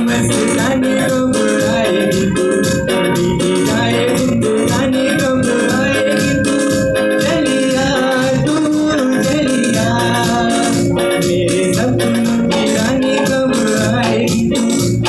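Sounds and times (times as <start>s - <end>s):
organ-like melody: 0.0s - 15.0s
shaker rhythm: 0.0s - 15.0s.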